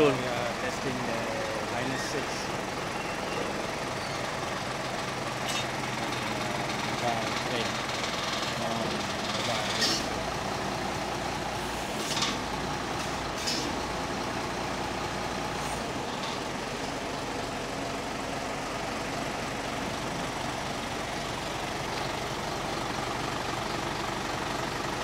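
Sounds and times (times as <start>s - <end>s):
diesel truck engine idling: 0.0s - 25.0s
short air hisses: 13.4s - 13.8s.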